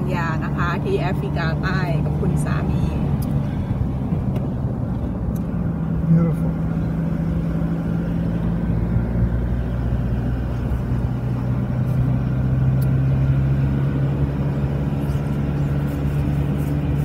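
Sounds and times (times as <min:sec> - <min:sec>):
car engine and road noise: 0:00.0 - 0:17.0.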